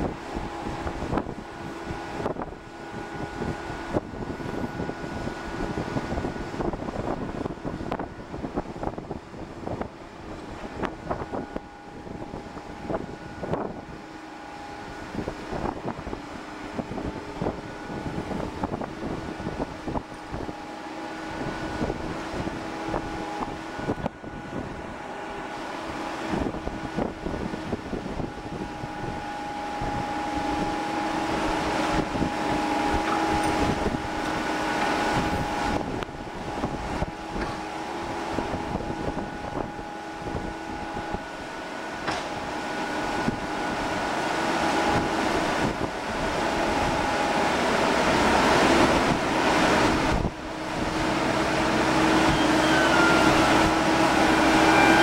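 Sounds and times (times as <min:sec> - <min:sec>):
crane whining tones: 0:00.0 - 0:55.0
machinery hum: 0:00.0 - 0:55.0
wind buffeting microphone: 0:00.0 - 0:55.0.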